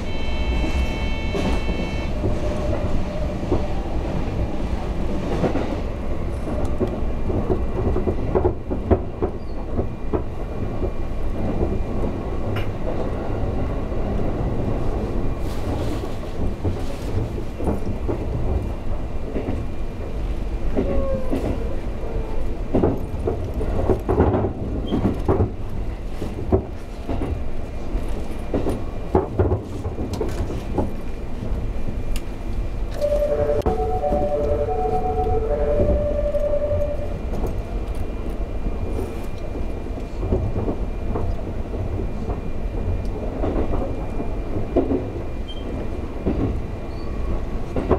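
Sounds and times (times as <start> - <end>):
train running rumble: 0.0 - 47.9
alternating tone chime: 33.0 - 37.3.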